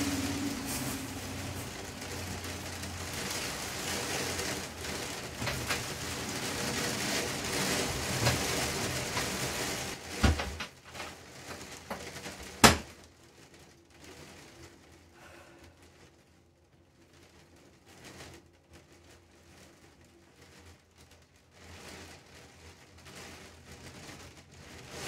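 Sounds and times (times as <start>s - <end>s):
steady hiss: 0.0s - 10.2s.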